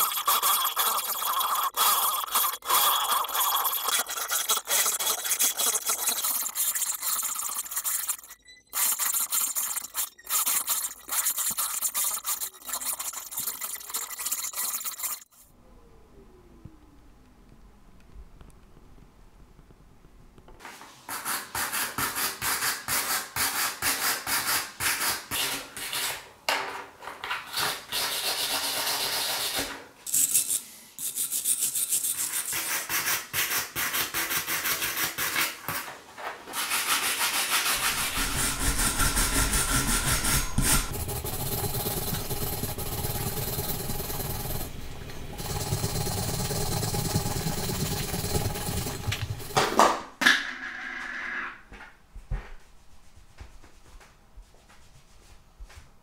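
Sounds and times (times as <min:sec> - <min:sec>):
wire brush scrubbing plastic: 0:00.0 - 0:15.5, 0:36.5 - 0:44.6.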